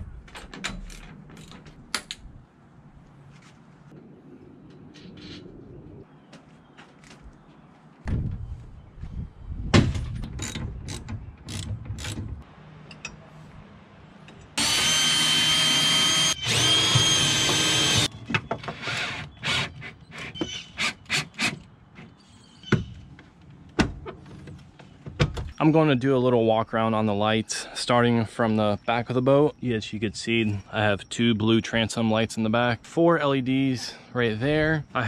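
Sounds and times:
cordless drill drilling fiberglass: 14.6 - 18.1.

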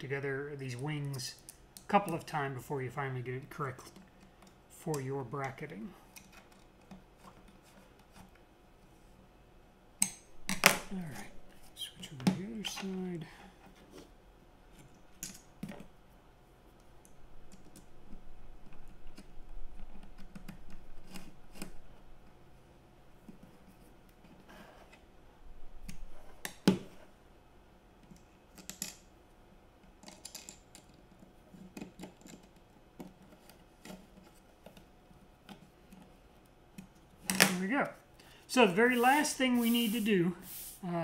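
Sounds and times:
small plastic parts clicking: 29.8 - 34.0.

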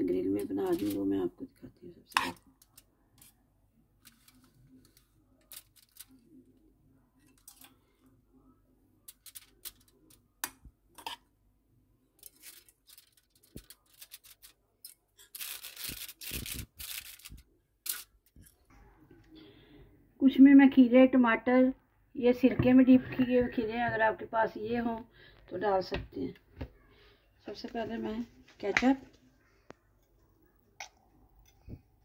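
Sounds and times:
aluminium foil crinkling: 0.4 - 1.1, 4.0 - 6.4, 9.1 - 10.2, 12.2 - 18.6
spoon clicking and scraping: 9.1 - 11.3.

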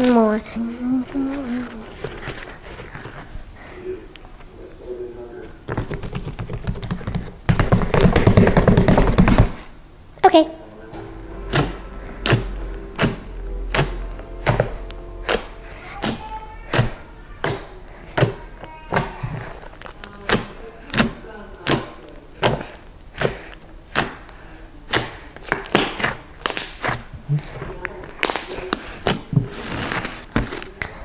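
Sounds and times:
fingers poking slime with pops: 15.3 - 29.4.

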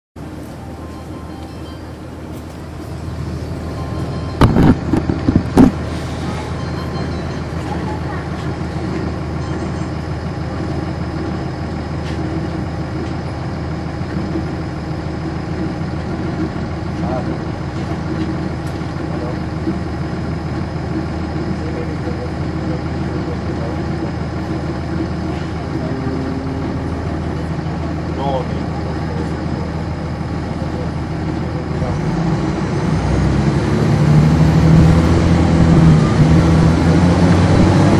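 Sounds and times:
diesel bus engine running: 0.2 - 37.9.

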